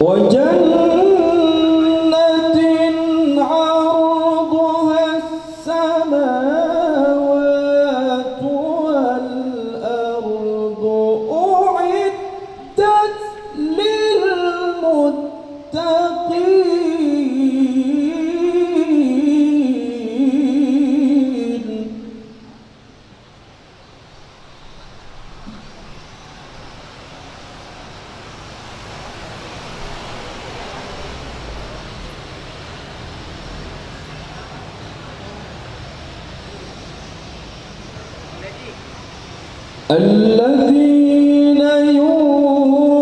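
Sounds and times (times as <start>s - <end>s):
man reciting melodically: 0.0s - 22.3s, 39.9s - 43.0s.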